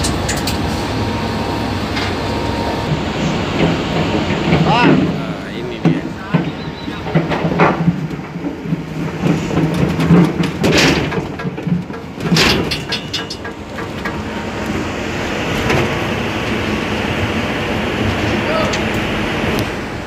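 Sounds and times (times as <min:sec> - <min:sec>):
hooves knocking on metal chute: 0:02.9 - 0:14.8.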